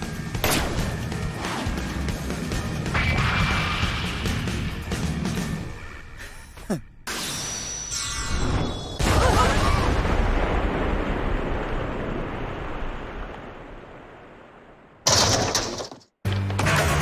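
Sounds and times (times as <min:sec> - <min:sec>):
explosion blast with rumble: 0:09.0 - 0:13.8.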